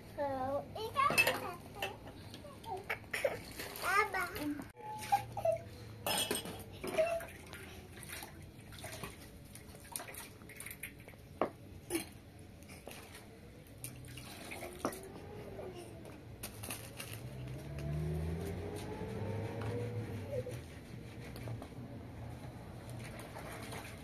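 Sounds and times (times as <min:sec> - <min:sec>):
water sloshing in a plastic basin: 0:00.8 - 0:24.0
dishes clinking: 0:01.1 - 0:02.1, 0:06.0 - 0:07.2.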